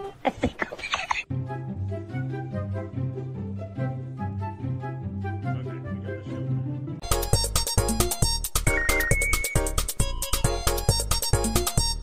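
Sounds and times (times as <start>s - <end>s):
soft melodic background music: 1.3s - 12.0s
lively music with steady beat: 7.0s - 12.0s.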